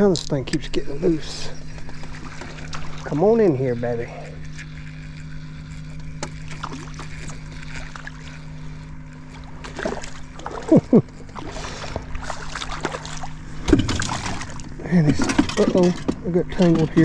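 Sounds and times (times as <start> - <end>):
boat engine hum: 0.0 - 17.0
water splashing: 2.0 - 3.3, 6.4 - 8.3, 9.3 - 14.8.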